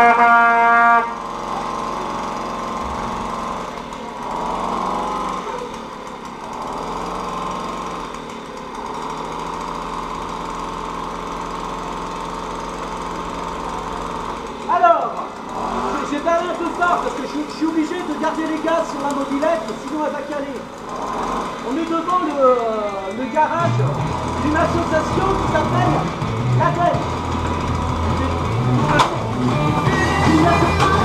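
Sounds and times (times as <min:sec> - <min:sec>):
loud steady tone: 0:00.0 - 0:03.8
moped engine revving: 0:00.0 - 0:31.0.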